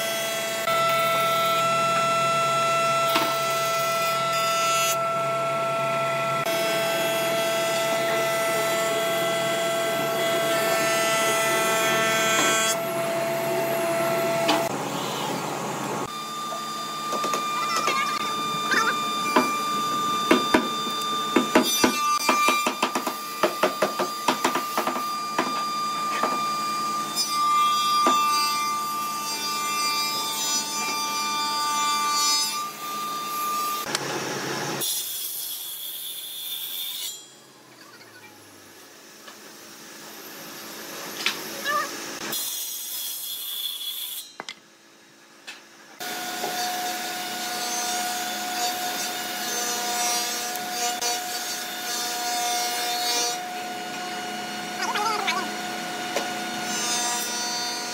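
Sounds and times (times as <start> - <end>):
thickness planer cutting wood: 6.4 - 14.8, 16.5 - 26.8.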